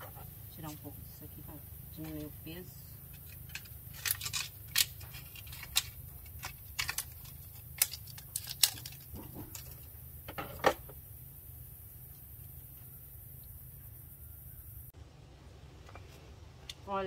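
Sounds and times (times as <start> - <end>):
rustling handling: 3.0 - 9.9.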